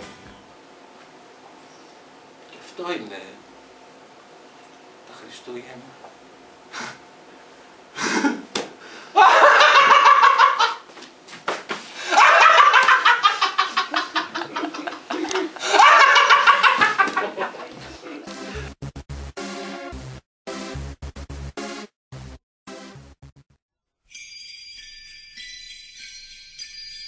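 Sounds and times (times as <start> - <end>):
audience laughing: 9.2 - 10.8, 12.0 - 18.3.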